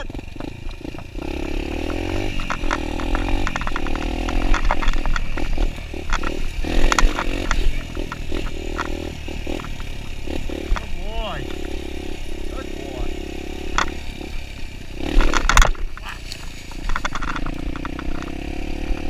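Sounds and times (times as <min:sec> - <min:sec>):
dirt bike engine under throttle: 0:00.0 - 0:19.0
sharp clattering knocks: 0:00.1 - 0:11.9, 0:15.0 - 0:16.0, 0:16.7 - 0:19.0.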